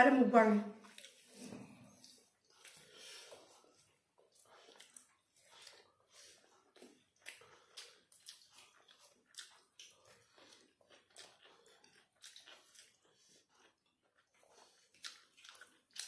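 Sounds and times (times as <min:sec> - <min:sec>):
chewing and mouth smacks: 0:00.8 - 0:16.0.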